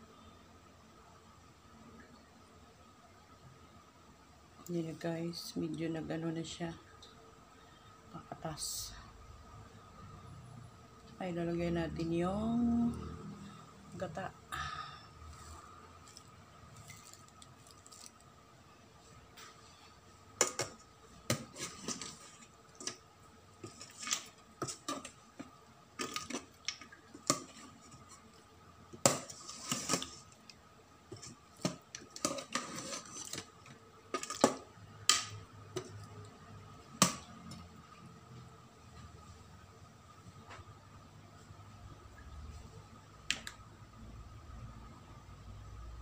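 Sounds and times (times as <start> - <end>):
metal spoon scraping metal pot: 21.3 - 23.0, 31.1 - 33.5.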